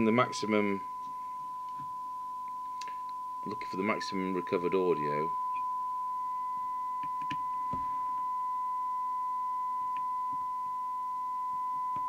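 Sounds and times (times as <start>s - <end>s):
steady radio test tone: 0.0s - 12.0s.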